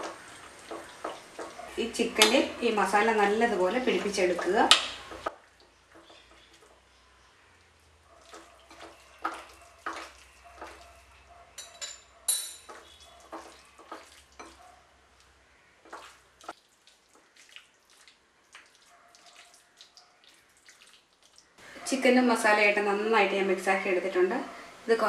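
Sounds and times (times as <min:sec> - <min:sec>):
wet squelches of marinade: 0:00.0 - 0:11.3, 0:12.7 - 0:21.7
clinks against ceramic bowl: 0:11.6 - 0:12.8.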